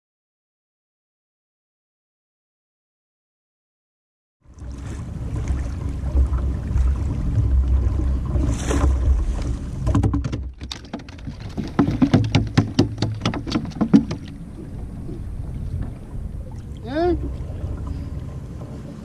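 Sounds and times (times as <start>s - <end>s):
water lapping at kayak: 4.4s - 19.0s
sharp clicks and knocks: 9.8s - 14.4s.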